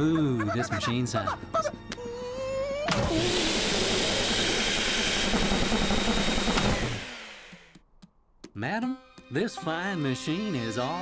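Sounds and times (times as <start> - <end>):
cartoon vacuum cleaner rushing: 2.9 - 7.7.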